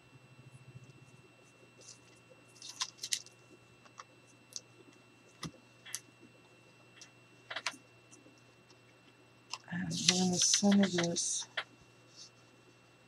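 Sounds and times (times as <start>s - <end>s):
tape peeling crinkles and clicks: 1.8s - 3.3s.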